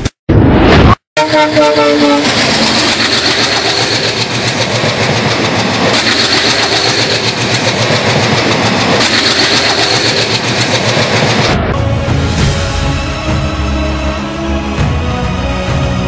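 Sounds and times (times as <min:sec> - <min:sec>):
train wheels on rails: 0:01.2 - 0:13.9.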